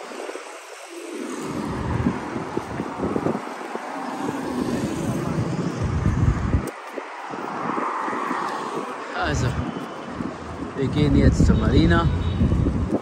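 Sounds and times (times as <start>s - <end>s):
street traffic going by: 0.0s - 13.0s
wind on microphone: 0.0s - 13.0s.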